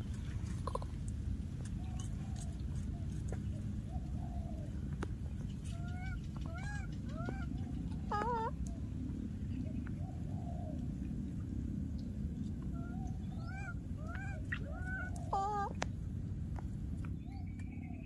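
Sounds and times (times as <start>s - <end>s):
low rumble: 0.0s - 18.0s
infant monkey crying: 5.7s - 8.6s, 12.7s - 15.8s.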